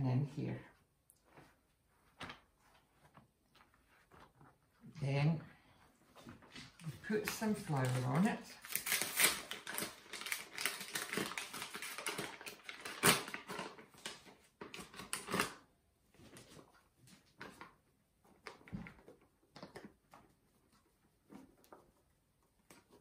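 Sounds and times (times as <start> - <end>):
paper bag crinkling: 6.6 - 15.6.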